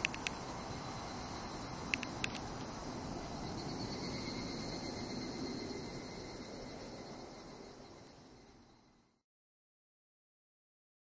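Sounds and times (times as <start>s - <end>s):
sharp clicks: 0.0s - 0.4s, 1.9s - 2.7s
insects singing: 0.0s - 9.0s.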